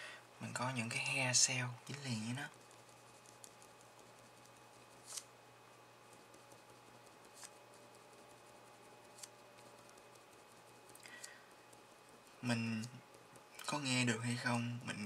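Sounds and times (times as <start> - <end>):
room hum: 0.0 - 15.0
marker scratching on paper: 1.9 - 5.3, 6.0 - 11.0.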